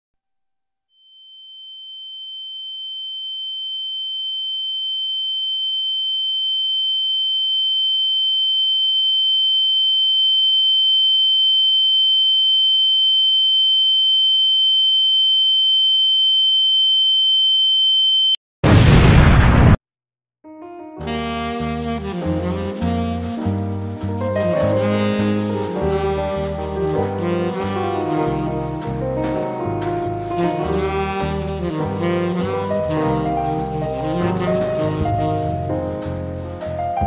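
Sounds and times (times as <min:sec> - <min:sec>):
high-pitched sine beep: 0:01.0 - 0:18.4
explosion sound effect: 0:18.6 - 0:19.8.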